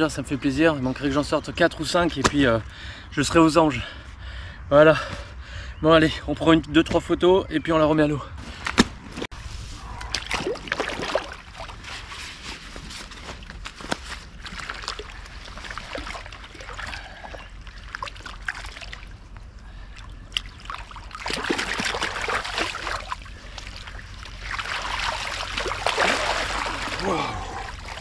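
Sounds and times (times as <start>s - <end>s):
water sloshing and splashing: 9.8s - 28.0s.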